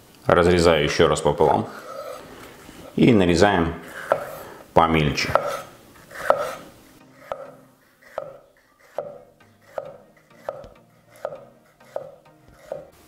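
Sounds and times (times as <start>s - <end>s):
knife chopping on wooden board: 4.0s - 4.4s, 5.2s - 6.6s, 7.2s - 12.9s.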